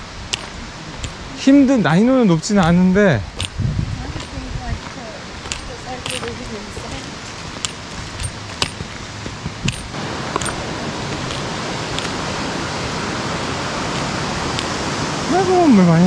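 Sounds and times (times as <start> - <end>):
stream water flowing: 0.0 - 16.0
sharp clicks: 5.5 - 6.4.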